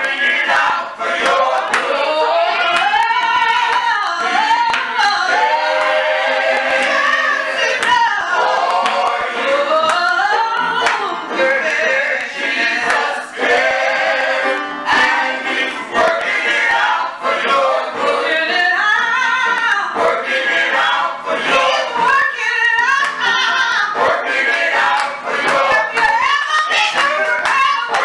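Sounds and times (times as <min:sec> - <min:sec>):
women's choir singing: 0:00.0 - 0:28.0
hand claps: 0:00.5 - 0:02.0, 0:02.7 - 0:07.1, 0:07.8 - 0:13.2, 0:24.5 - 0:28.0.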